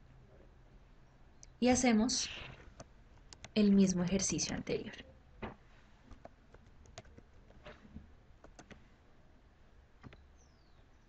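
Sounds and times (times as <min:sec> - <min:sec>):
mouse clicks: 0:02.8 - 0:03.6
keyboard typing: 0:02.8 - 0:04.6, 0:06.1 - 0:07.7, 0:08.4 - 0:08.8.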